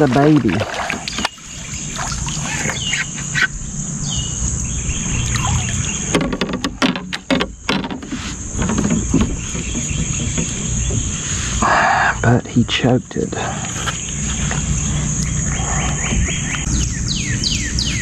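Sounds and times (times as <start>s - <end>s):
bird chirps: 0.9s - 6.2s, 13.8s - 18.0s
handling clicks and knocks: 6.1s - 11.1s.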